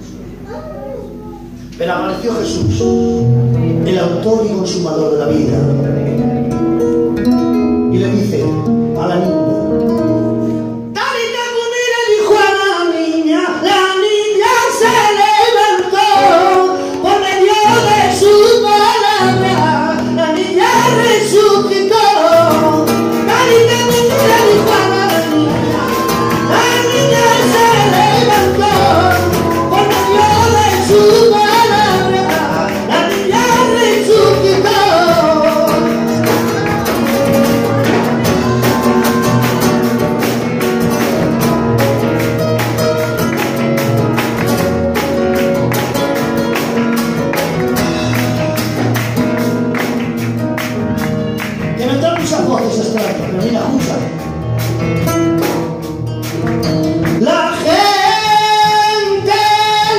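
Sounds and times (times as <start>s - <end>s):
acoustic guitar strumming: 0.0s - 59.9s
man singing: 1.8s - 6.4s, 7.8s - 10.3s, 10.9s - 44.4s, 51.6s - 54.4s, 56.7s - 59.9s.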